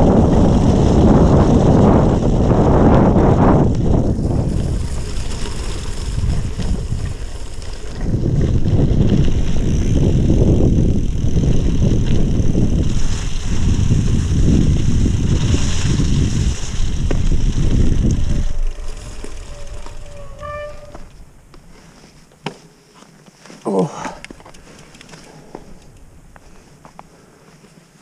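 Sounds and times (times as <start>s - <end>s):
wind buffeting microphone: 0.0s - 21.4s
bike tyres rolling through wet gravel: 0.0s - 22.2s.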